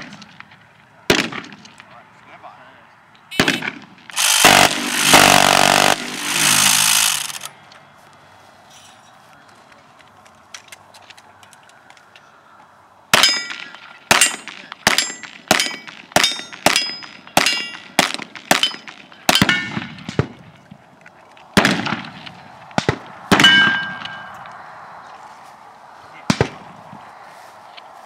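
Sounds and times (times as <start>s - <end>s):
bullets ringing on steel targets: 13.2s - 20.2s, 23.4s - 24.4s.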